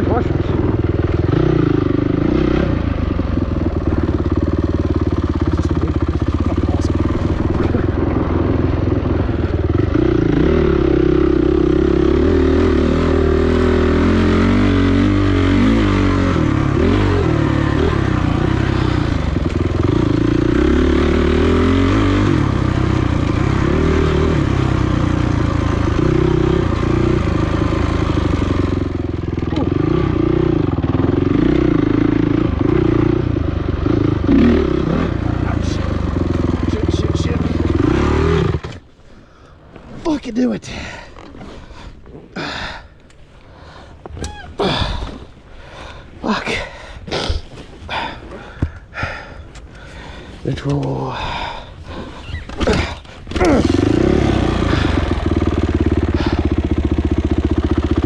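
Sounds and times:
dirt bike engine revving: 0.0s - 39.0s, 50.6s - 58.0s.

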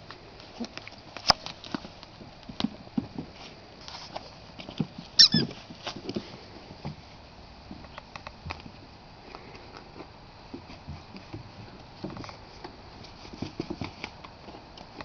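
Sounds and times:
short high squeak: 5.2s - 5.5s.

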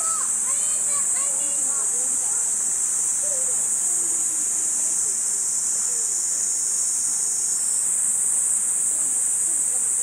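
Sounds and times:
cicada chorus buzzing: 0.0s - 10.0s
faint distant voices: 0.0s - 10.0s.

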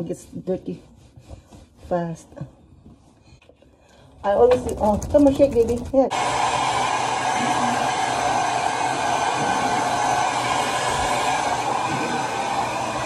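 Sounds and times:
hair dryer blowing: 6.1s - 13.0s.

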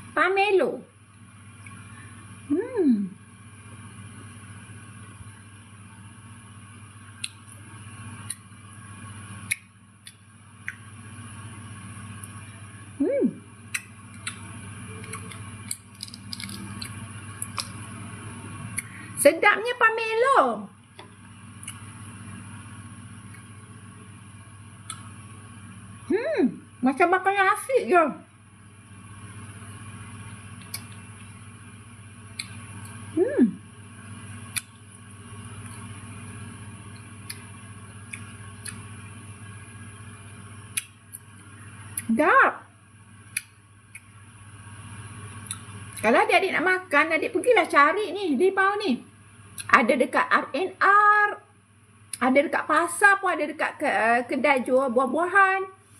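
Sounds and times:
steady low hum: 0.0s - 55.9s
person chewing fruit: 7.1s - 8.6s, 9.4s - 11.0s, 13.6s - 19.1s, 21.1s - 22.0s, 24.8s - 25.3s, 30.2s - 31.5s, 32.2s - 33.2s, 34.2s - 39.2s, 40.6s - 42.1s, 43.2s - 44.2s, 45.3s - 46.0s
mouth clicks: 13.7s - 15.8s, 32.3s - 33.0s, 34.5s - 34.8s, 36.9s - 38.9s, 40.7s - 41.2s, 43.3s - 44.1s
wet squishy chewing: 13.7s - 17.8s, 30.3s - 31.4s, 36.9s - 39.0s.

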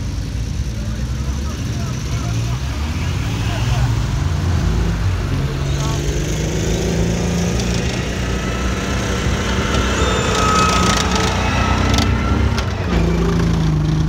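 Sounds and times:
tracked vehicle engine: 0.0s - 14.0s
thin high whine: 7.8s - 13.4s.

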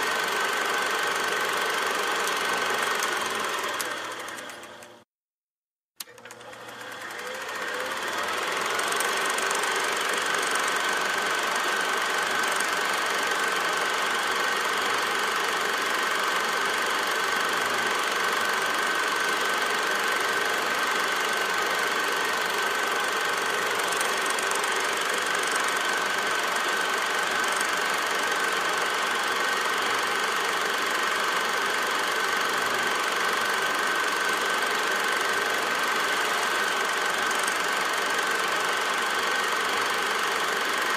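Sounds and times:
machine running with high whine: 6.1s - 40.9s.

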